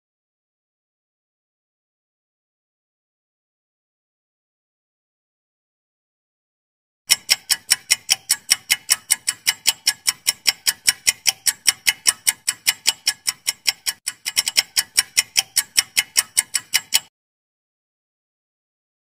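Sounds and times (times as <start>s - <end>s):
clock-like timer ticking: 7.1s - 17.1s.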